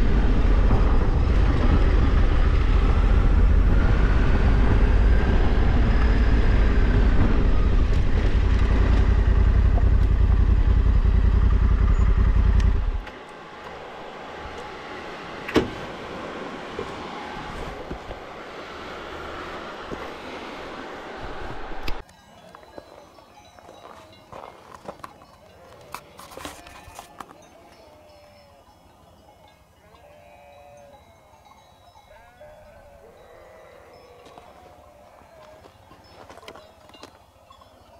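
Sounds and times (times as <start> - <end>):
motorcycle engine running: 0.0 - 15.0
sheep bleating: 29.8 - 31.2, 32.1 - 35.8.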